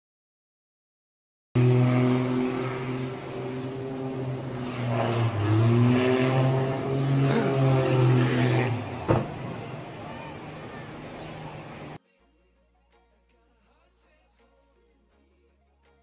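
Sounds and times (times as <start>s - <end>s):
small aircraft engine droning: 1.6s - 12.0s.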